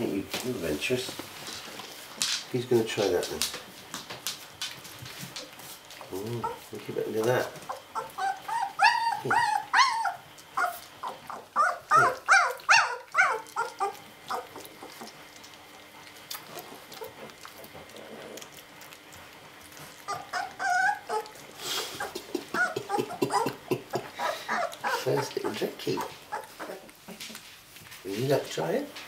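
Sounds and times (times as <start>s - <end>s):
puppies whimpering and squealing: 5.3s - 27.4s.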